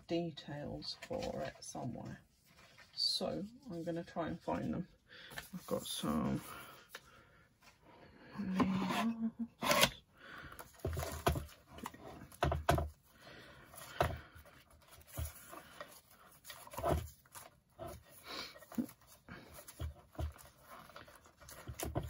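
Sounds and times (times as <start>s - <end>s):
rummaging through paper labels: 9.6s - 22.0s.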